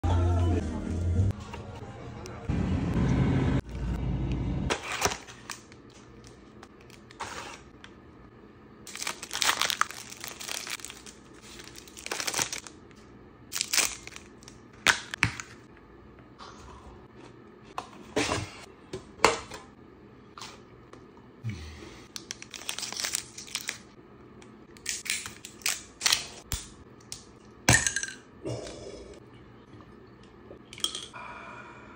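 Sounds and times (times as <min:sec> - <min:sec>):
packaging tearing open: 0:08.9 - 0:12.7, 0:13.5 - 0:15.1, 0:22.2 - 0:23.9
snack packaging crinkling: 0:08.9 - 0:15.2, 0:22.1 - 0:24.0, 0:24.8 - 0:26.5.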